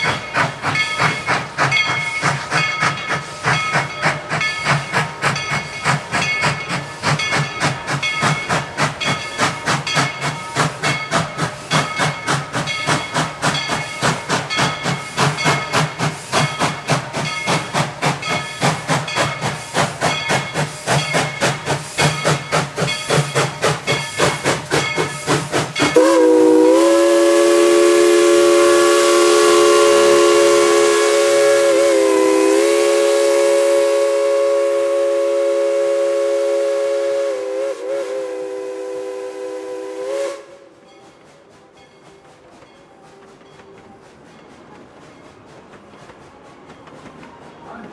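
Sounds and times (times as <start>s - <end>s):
steam locomotive chuffing: 0.0s - 47.9s
steam whistle blast: 26.0s - 40.8s.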